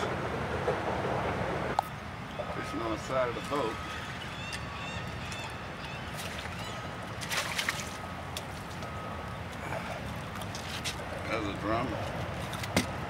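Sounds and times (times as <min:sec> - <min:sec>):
water slapping boat hull: 0:04.4 - 0:08.9
fish thrashing and splashing: 0:06.1 - 0:08.8.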